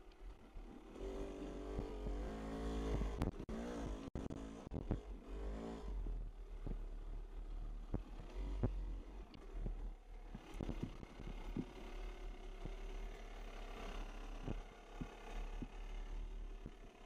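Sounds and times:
dirt bike engine revving: 0.9 - 6.0.

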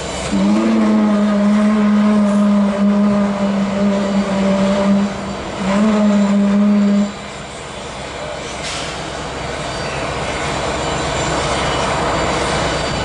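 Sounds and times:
steam locomotive whistle blowing: 0.0 - 7.4.

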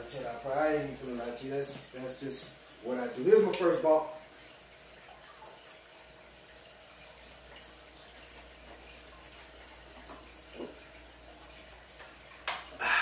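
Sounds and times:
man gulping water: 10.4 - 11.0, 12.5 - 13.0.

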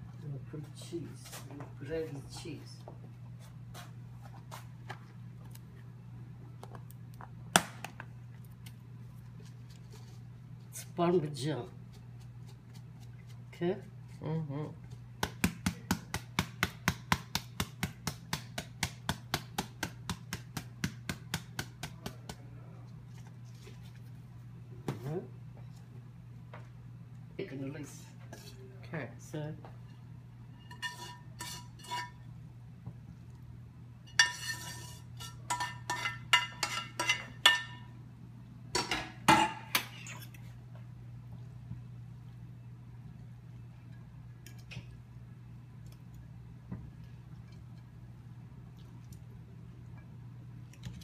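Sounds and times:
utensils scraping a frying pan: 30.6 - 32.2, 34.1 - 37.6.

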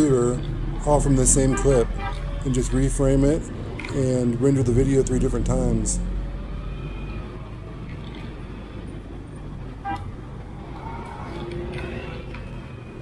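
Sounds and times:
road traffic rumble: 0.0 - 13.0
horn toot: 0.8 - 2.8.

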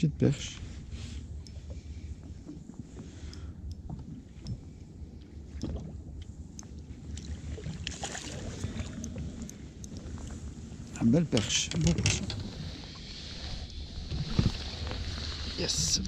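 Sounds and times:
low wind rumble: 0.0 - 16.0
water lapping against boat hull: 0.3 - 16.0
light scattered ticks: 3.0 - 10.1.

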